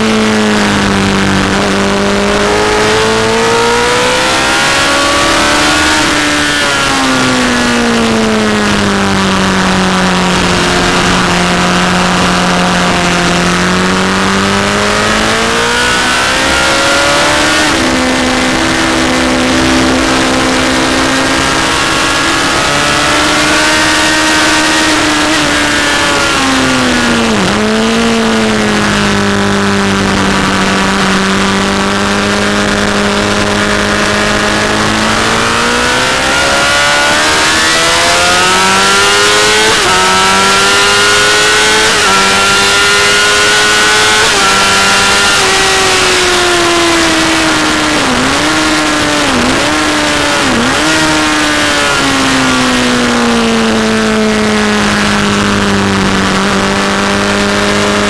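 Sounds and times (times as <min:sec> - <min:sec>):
motorcycle engine at speed: 0:00.0 - 0:58.0
wind rush: 0:08.6 - 0:35.4.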